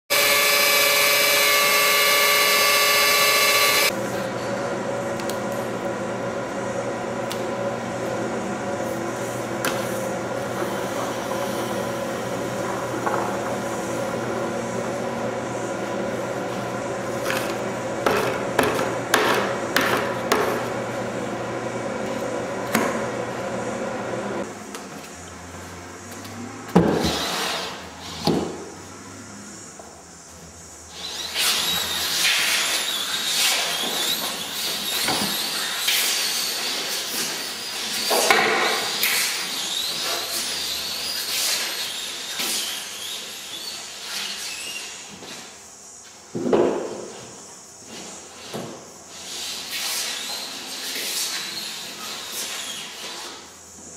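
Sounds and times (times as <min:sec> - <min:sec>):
electric drill with paddle mixer: 0:00.1 - 0:04.0, 0:30.9 - 0:41.2
steady hum: 0:00.1 - 0:24.6.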